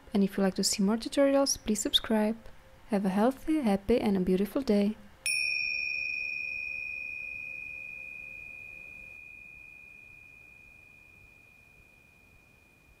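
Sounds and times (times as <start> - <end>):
high bell-like chime: 5.3 - 13.0.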